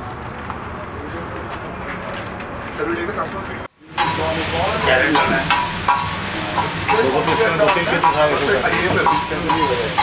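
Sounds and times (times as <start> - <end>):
food sizzling: 3.8 - 10.0
metal spatula clanking on griddle: 3.9 - 10.0.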